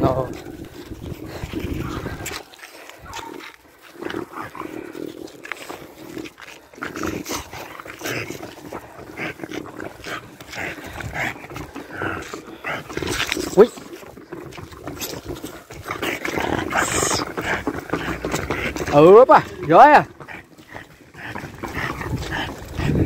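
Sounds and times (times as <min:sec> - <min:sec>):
dog growling: 0:00.0 - 0:23.0.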